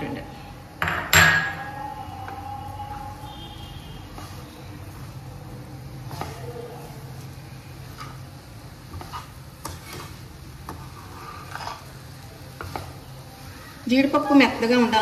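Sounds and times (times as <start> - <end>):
spoon scraping a pan: 6.0 - 13.1.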